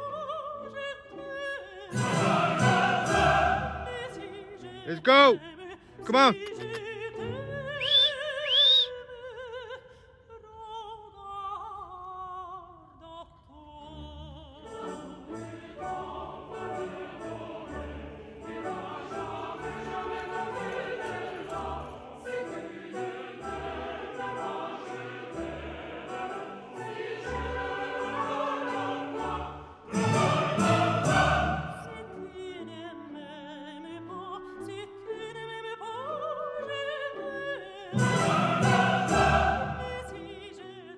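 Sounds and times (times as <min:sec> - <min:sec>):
operatic solo voice singing: 0:00.0 - 0:09.7
orchestral accompaniment: 0:01.9 - 0:05.3, 0:14.6 - 0:32.9, 0:37.9 - 0:40.5.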